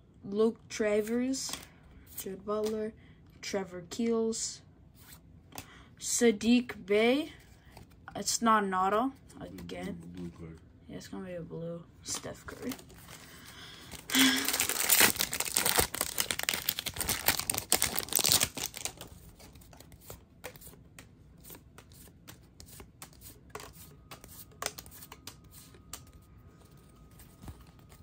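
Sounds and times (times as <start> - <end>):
plastic wrapper tearing and crinkling: 13.8 - 19.8
cards clicking and rustling: 13.9 - 28.0.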